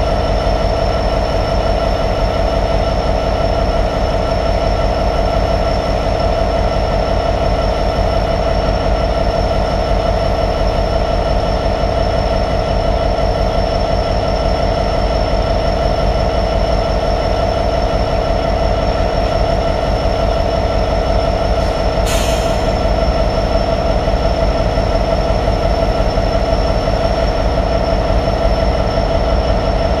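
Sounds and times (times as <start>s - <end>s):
diesel locomotive engine idling: 0.0s - 30.0s
short air hiss: 22.0s - 22.8s.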